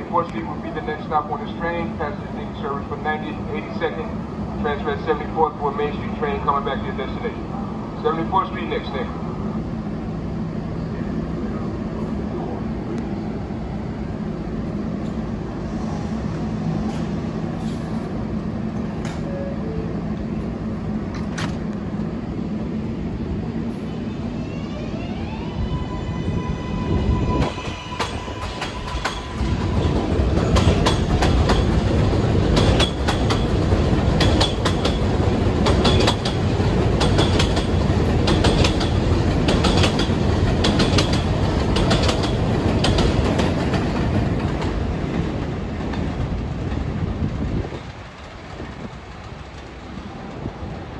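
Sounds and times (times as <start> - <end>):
subway train humming: 0.0 - 50.9
wheel clatter over rail joints: 27.4 - 49.8.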